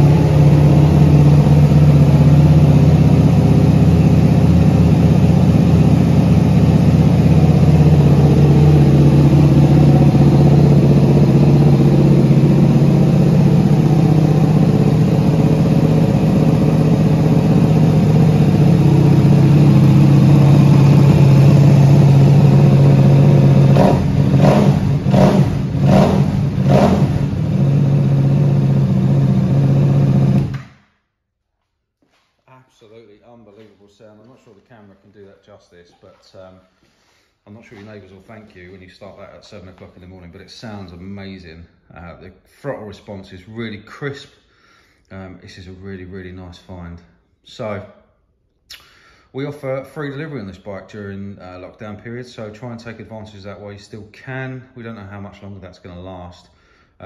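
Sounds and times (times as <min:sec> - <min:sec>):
motorcycle engine idling: 0:00.0 - 0:30.5.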